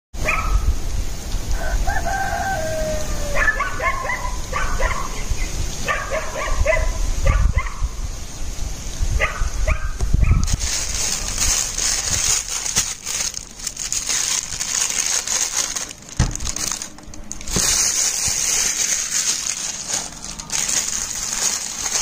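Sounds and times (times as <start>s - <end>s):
rooster crowing: 1.5s - 4.2s
steady low rumble: 10.0s - 22.0s.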